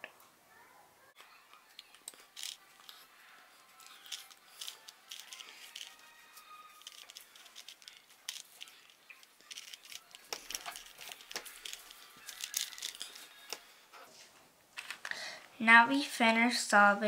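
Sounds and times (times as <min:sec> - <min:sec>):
puzzle cube plastic clicks: 0:01.8 - 0:03.0, 0:03.8 - 0:06.0, 0:06.8 - 0:13.6.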